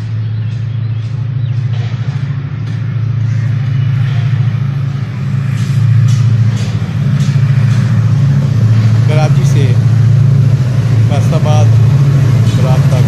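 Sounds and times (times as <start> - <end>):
diesel locomotive engine drone: 0.0 - 13.0.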